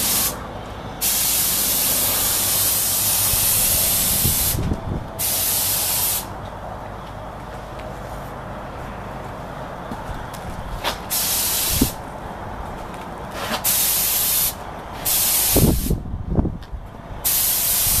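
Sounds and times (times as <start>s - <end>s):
spray gun hissing: 0.0s - 0.4s, 1.0s - 4.6s, 5.2s - 6.3s, 11.1s - 12.0s, 13.6s - 16.0s, 17.2s - 18.0s.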